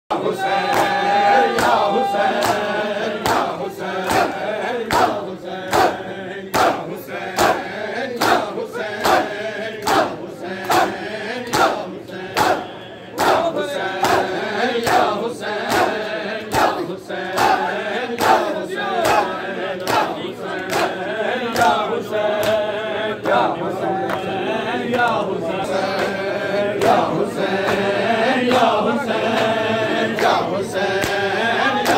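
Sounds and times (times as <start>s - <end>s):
men chanting in unison: 0.1s - 31.9s
hands slapping chests: 2.4s - 3.5s, 9.8s - 10.9s, 18.2s - 21.8s.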